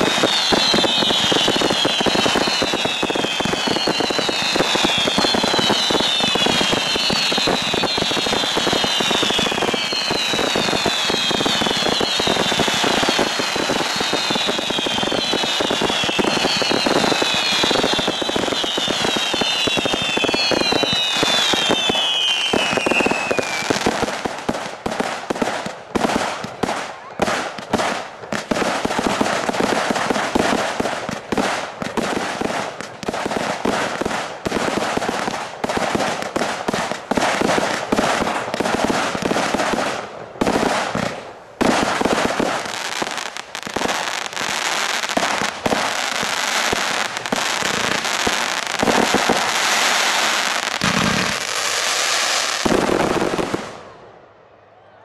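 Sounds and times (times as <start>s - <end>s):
firework whistles falling in pitch: 0.0s - 23.9s
firework bangs and crackling: 0.0s - 54.6s.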